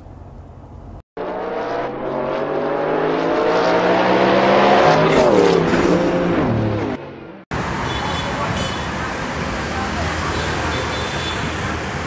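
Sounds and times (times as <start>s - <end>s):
car engine accelerating: 1.2s - 7.4s.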